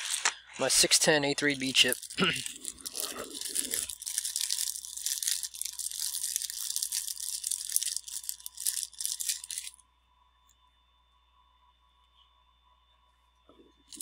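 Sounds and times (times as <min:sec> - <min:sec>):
plastic packaging crinkling: 0:00.0 - 0:09.8.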